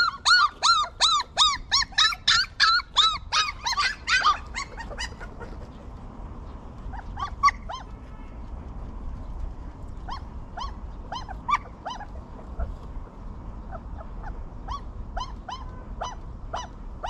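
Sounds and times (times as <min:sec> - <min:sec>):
puppy whimpering yelps: 0:00.0 - 0:05.7, 0:06.9 - 0:07.9, 0:10.0 - 0:12.8, 0:13.7 - 0:16.7.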